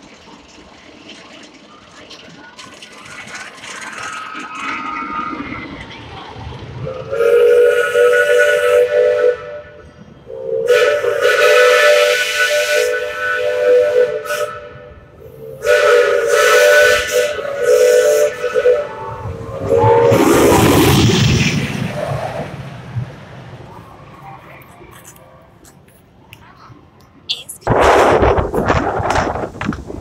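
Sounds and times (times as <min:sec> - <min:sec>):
steam locomotive whistle blasts: 0:06.8 - 0:20.6.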